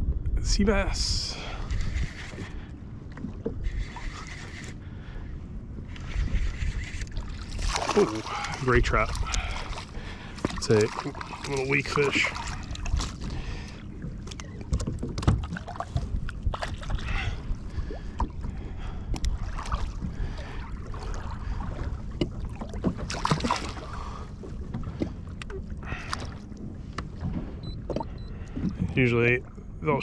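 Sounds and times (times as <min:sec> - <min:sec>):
wind on microphone: 0:00.0 - 0:02.7, 0:05.7 - 0:07.9, 0:14.5 - 0:23.0
water lapping at kayak hull: 0:00.9 - 0:30.0.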